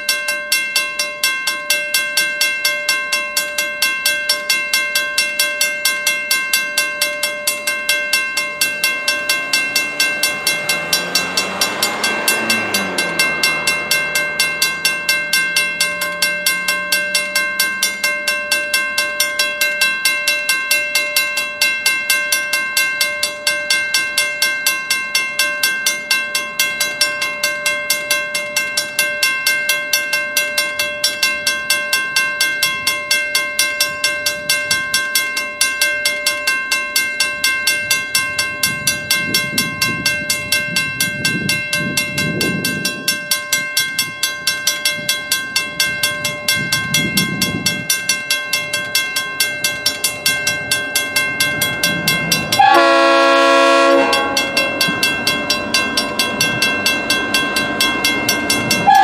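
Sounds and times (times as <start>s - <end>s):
crossing bell ringing: 0.0s - 59.0s
train horn blast: 52.5s - 54.7s.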